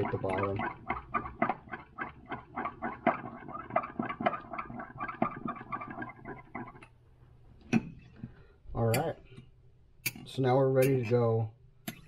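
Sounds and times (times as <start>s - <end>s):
stir stick scraping glass cup: 2.5s - 6.9s.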